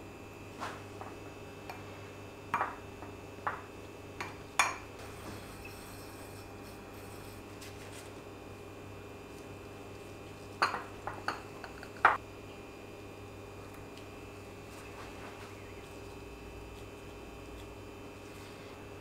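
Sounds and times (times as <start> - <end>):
steady low hum: 0.0 - 19.0
clicks and knocks against glass bowls: 10.6 - 12.2.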